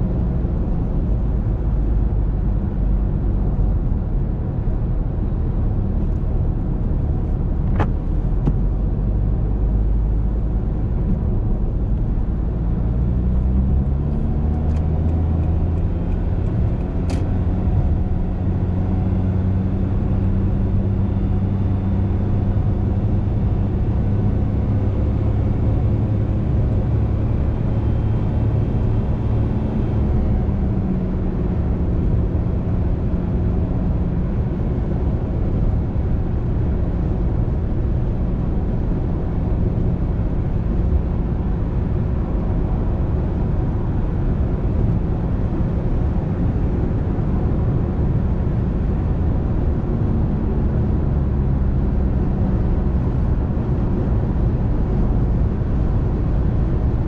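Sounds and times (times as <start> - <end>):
car engine: 0.0 - 57.0.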